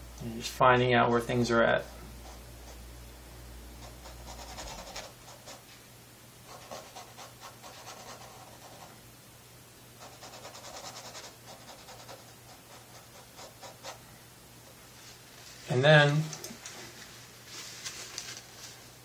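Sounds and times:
paintbrush scrubbing on canvas: 0:03.8 - 0:05.7, 0:10.0 - 0:14.0.

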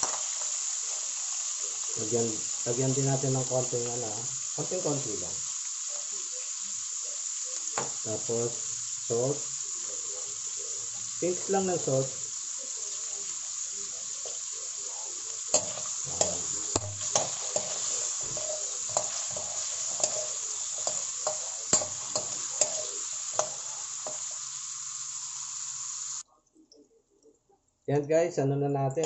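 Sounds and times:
metal spoon scraping a pan: 0:00.0 - 0:01.1, 0:15.4 - 0:25.0
carrots sizzling in hot oil: 0:00.0 - 0:26.2.

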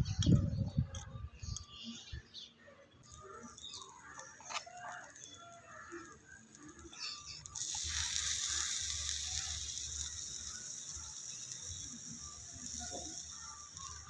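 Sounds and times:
liquid sizzling in hot pot: 0:03.2 - 0:14.0.

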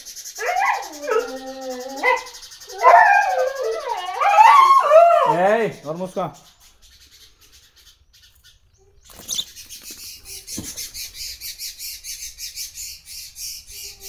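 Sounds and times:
baby sparrow chirping: 0:06.3 - 0:14.0.

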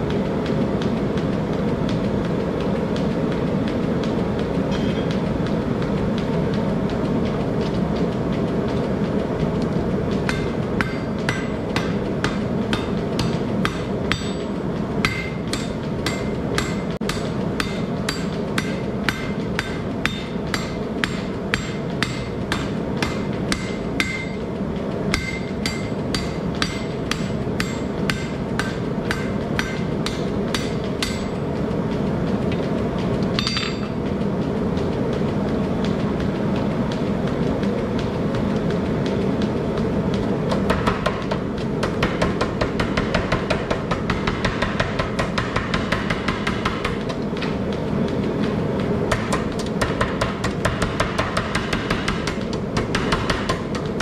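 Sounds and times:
forge burner roar: 0:00.0 - 0:54.0
hammer striking steel on anvil: 0:10.2 - 0:24.5, 0:25.1 - 0:31.4, 0:33.4 - 0:34.0, 0:40.6 - 0:47.2, 0:49.1 - 0:53.9.

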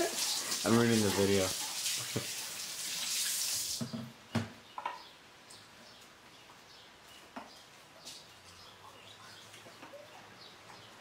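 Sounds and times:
faucet running water into sink: 0:00.0 - 0:03.8.

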